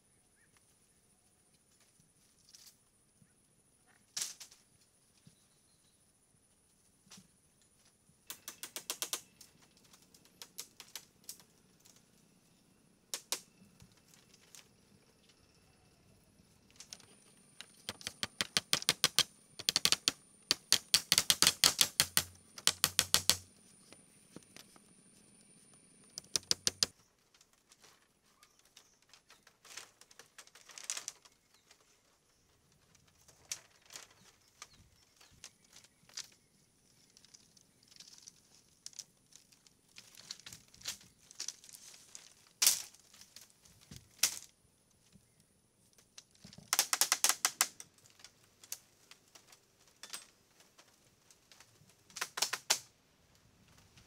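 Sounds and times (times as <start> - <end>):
rapid sharp taps: 17.6 - 23.4, 26.2 - 26.9.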